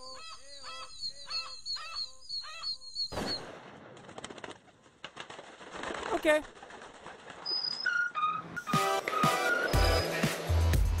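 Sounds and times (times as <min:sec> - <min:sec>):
wings fluttering: 0:03.3 - 0:08.3.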